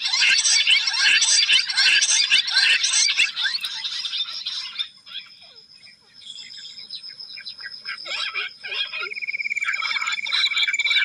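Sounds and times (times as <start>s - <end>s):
quail chirping whistles: 0.0s - 5.6s.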